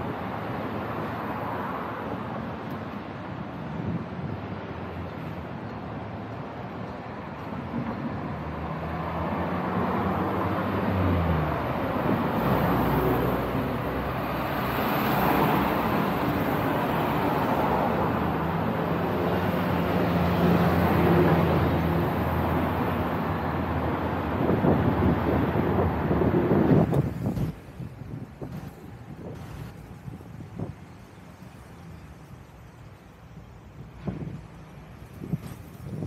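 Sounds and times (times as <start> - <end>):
motor vehicles passing: 4.3 - 33.5.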